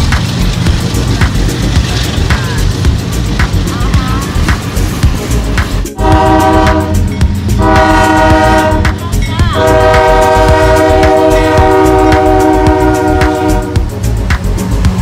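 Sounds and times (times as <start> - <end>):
locomotive engine rumbling: 0.0 - 15.0
locomotive air horn blasts: 6.0 - 9.0, 9.6 - 13.8.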